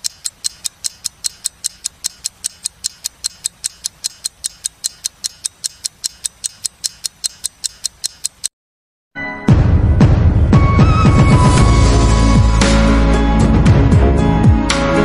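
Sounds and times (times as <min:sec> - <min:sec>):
high-pitched clock ticking: 0:00.0 - 0:08.5.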